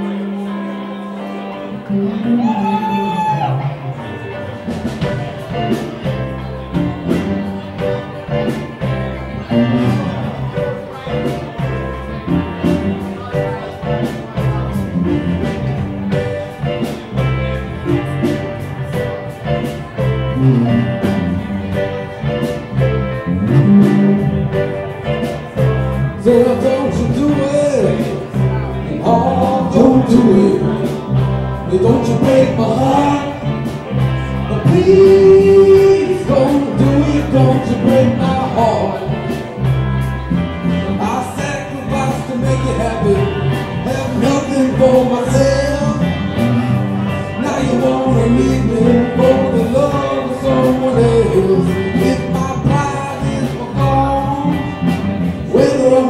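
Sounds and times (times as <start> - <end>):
live band with guitars and drums: 0.0 - 56.0
man singing: 20.0 - 56.0.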